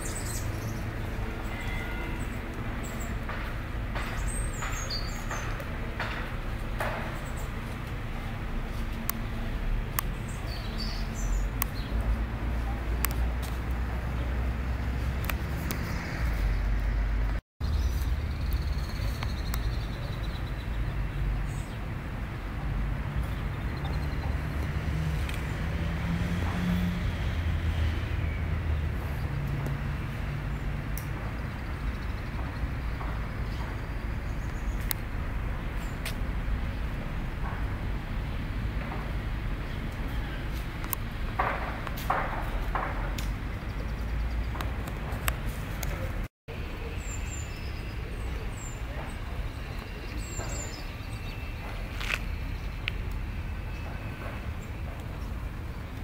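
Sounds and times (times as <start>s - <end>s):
distant traffic rumble: 0.0s - 56.0s.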